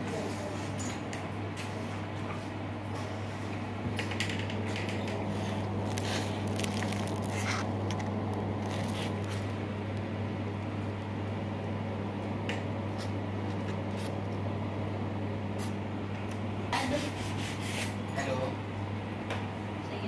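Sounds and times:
steady low hum: 0.0s - 20.0s
phone scraping on styrofoam: 5.4s - 7.7s.

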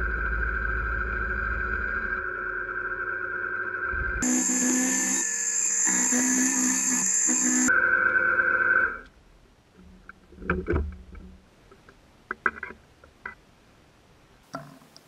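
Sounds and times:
milling machine spindle whine: 0.0s - 9.0s.

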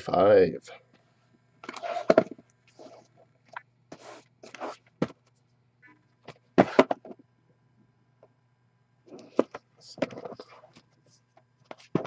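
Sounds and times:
cardboard boxes scraping and rustling: 1.7s - 3.1s.

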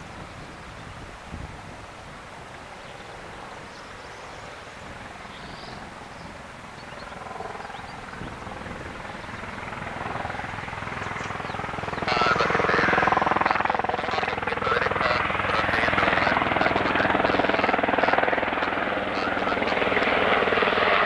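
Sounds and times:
helicopter rotor chop: 4.8s - 21.0s.

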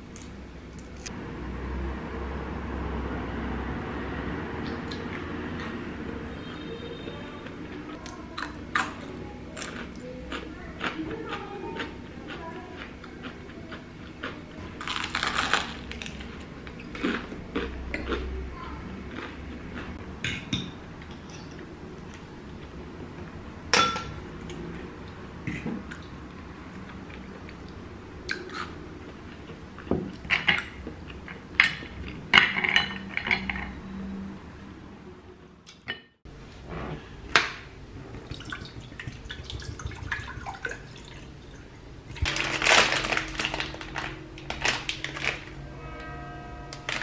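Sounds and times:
kitchen clatter: 23.7s - 24.2s, 31.6s - 33.7s.

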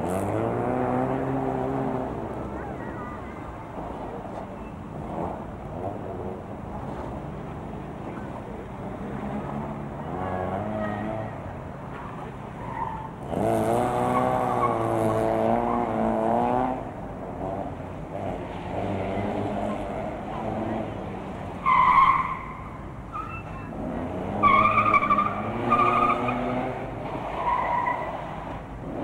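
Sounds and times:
rally car engine revving: 0.0s - 2.6s, 13.2s - 22.2s, 23.7s - 27.4s
tyres skidding: 0.0s - 29.0s.

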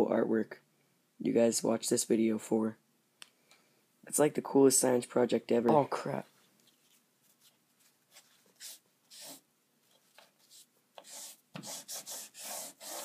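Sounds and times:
pen scribbling on paper: 8.6s - 9.4s, 10.4s - 13.0s.

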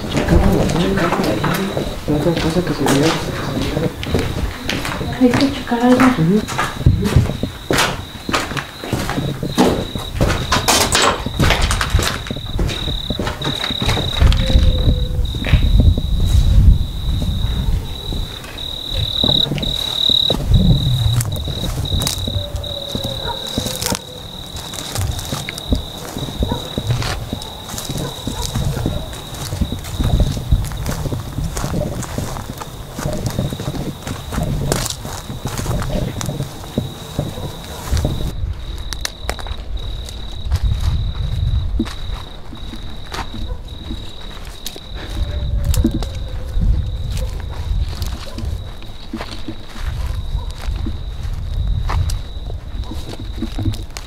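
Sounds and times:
low thumps: 0.0s - 24.0s
cricket trilling: 0.0s - 54.0s
dry weeds crackling: 0.0s - 54.0s
footsteps: 0.0s - 54.0s
low rumble: 18.9s - 22.9s.

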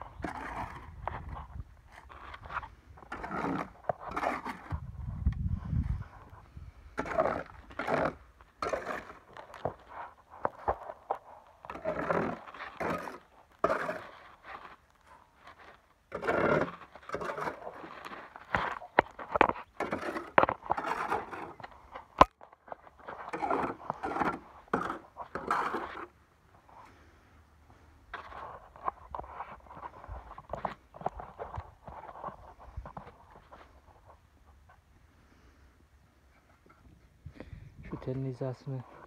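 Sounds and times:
shovel scraping wet concrete: 0.2s - 1.3s, 2.0s - 4.8s, 7.0s - 14.8s, 15.4s - 21.8s, 22.8s - 26.2s.

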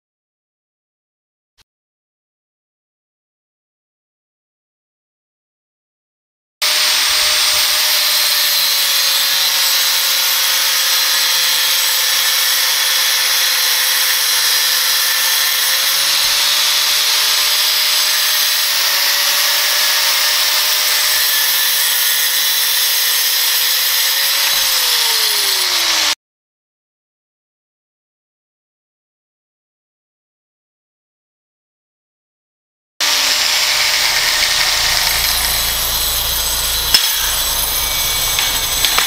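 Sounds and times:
angle grinder whining: 6.6s - 26.2s, 33.0s - 39.0s.

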